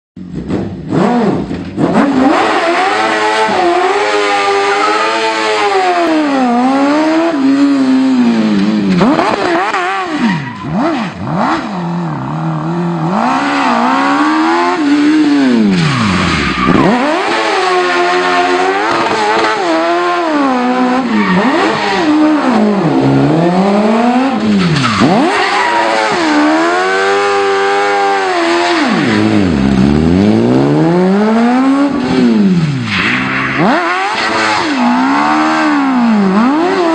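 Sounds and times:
car engine revving hard: 0.5 - 36.9
tyres squealing: 4.2 - 5.6.

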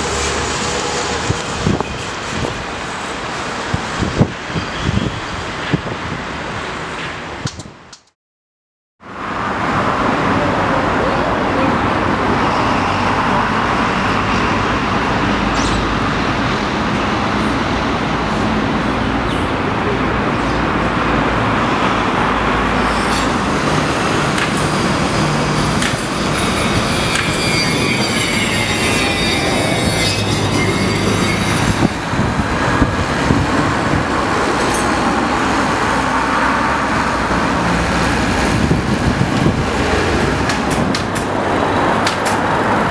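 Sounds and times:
road traffic: 0.0 - 8.2, 9.0 - 42.9.

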